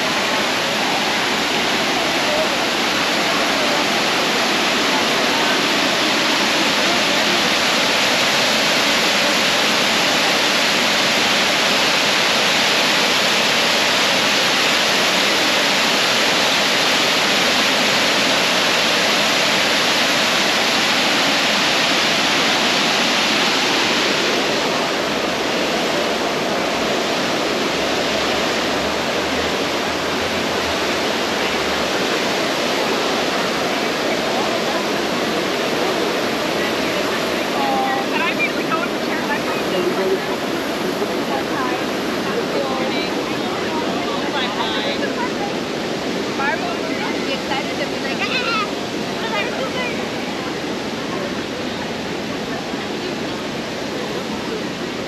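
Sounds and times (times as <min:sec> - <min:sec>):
water fountain splashing: 0:00.0 - 0:55.0.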